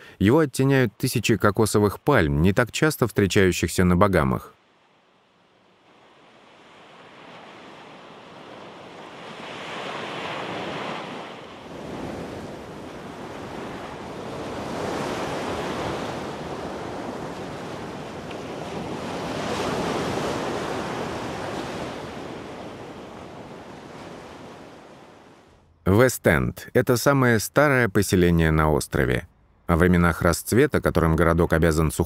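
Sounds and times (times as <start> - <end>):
small waves breaking on beach: 4.6 - 25.6.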